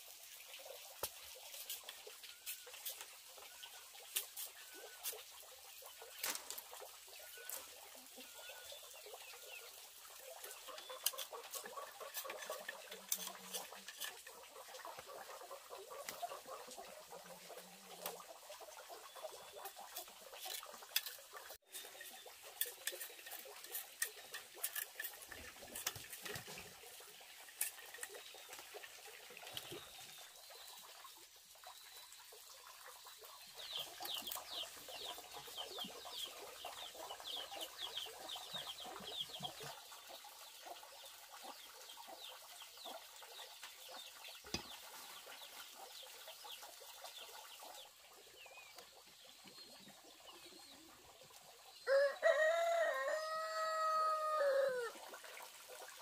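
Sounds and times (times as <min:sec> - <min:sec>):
chickens clucking: 0:00.6 - 0:27.0, 0:33.0 - 0:48.1.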